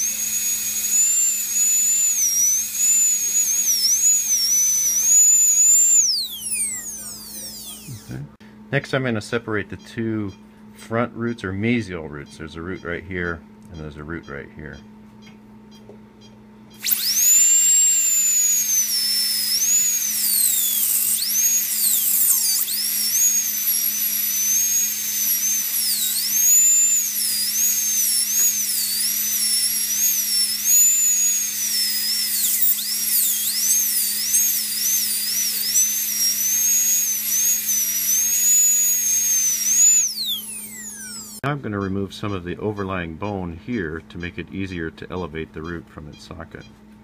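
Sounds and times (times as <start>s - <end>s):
dental drill whining: 0.0s - 8.4s, 16.8s - 41.4s.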